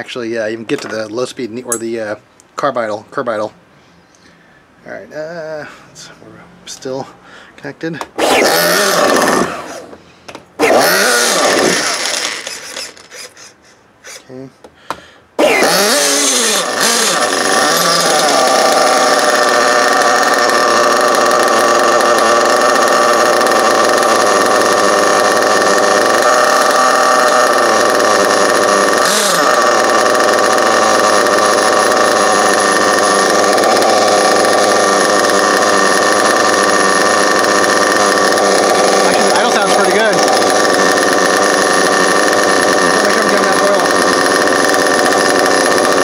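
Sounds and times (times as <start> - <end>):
small model engine idling: 8.2 - 10.0, 10.6 - 14.4, 15.4 - 46.0.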